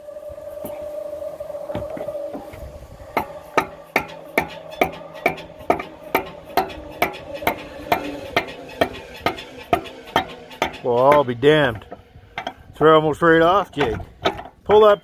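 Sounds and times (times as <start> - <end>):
hammer tapping on steel: 3.2 - 12.6.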